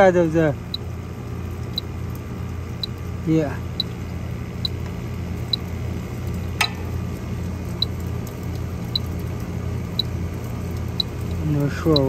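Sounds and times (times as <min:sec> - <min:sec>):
low machine hum: 0:00.0 - 0:12.0
leak detector beeping: 0:04.6 - 0:04.8, 0:08.9 - 0:09.1, 0:11.0 - 0:12.0
sharp click: 0:06.6 - 0:06.9.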